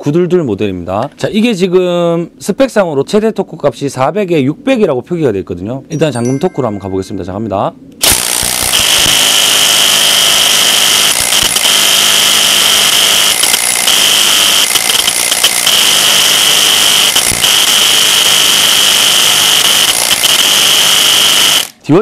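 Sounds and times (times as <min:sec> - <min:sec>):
impact wrench hammering: 0:13.3 - 0:16.2.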